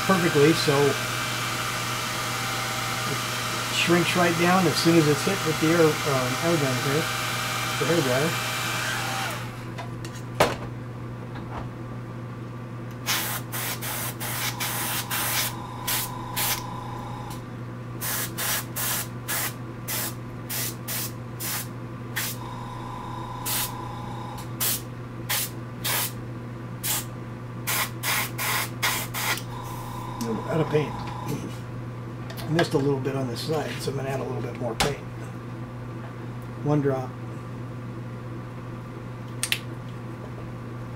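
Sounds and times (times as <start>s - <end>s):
steady low hum: 0.0s - 40.9s
airbrush hissing bursts: 13.1s - 16.8s, 18.0s - 26.1s.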